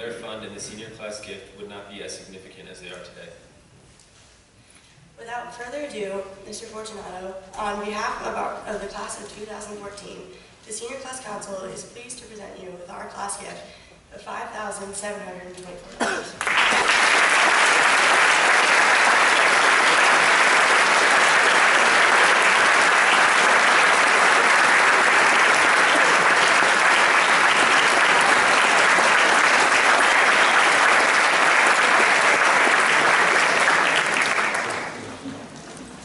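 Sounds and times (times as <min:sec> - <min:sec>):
audience applauding: 0:16.4 - 0:35.6.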